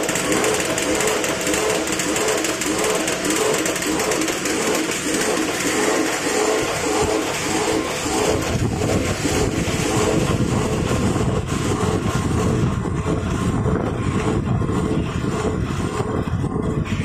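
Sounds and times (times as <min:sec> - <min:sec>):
packing machine rumbling: 0:00.0 - 0:17.0.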